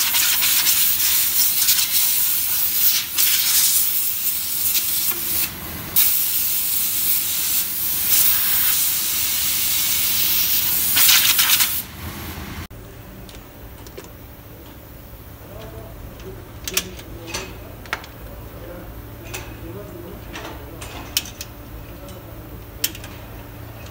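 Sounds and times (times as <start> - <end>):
compressed air blow gun hissing: 0.0 - 11.8.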